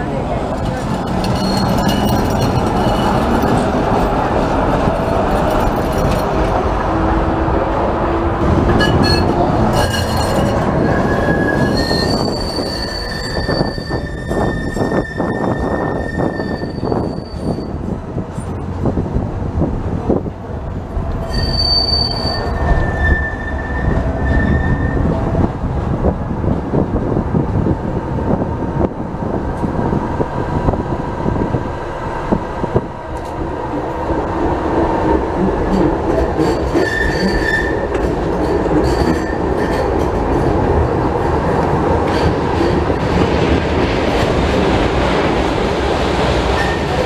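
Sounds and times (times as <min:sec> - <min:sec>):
tram wheels rumbling on rail: 0:00.0 - 0:47.0
wheel squeal: 0:01.2 - 0:03.2, 0:08.8 - 0:17.8, 0:21.2 - 0:25.0, 0:36.4 - 0:38.0.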